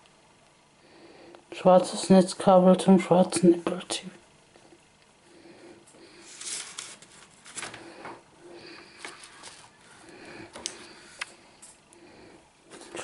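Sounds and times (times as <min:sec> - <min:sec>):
cable and cardboard box rustling: 0:06.3 - 0:08.2, 0:08.9 - 0:10.8.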